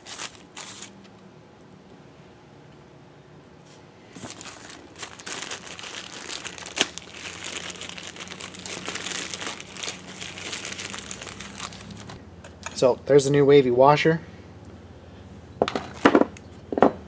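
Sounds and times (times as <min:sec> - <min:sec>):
plastic bag crinkling: 0:00.0 - 0:01.0, 0:04.2 - 0:12.2.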